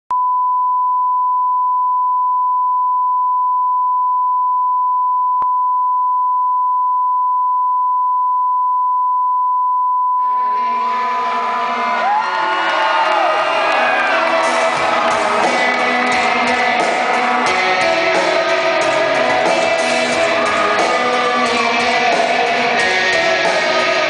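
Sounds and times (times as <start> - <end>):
loud mixed sound: 10.2 - 24.0.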